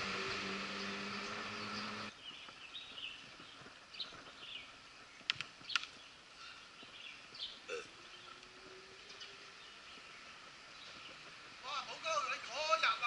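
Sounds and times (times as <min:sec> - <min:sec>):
engine hum with hiss: 0:00.0 - 0:05.1, 0:06.0 - 0:13.0
sharp clicks: 0:05.2 - 0:06.0
bird chirps: 0:09.0 - 0:11.2.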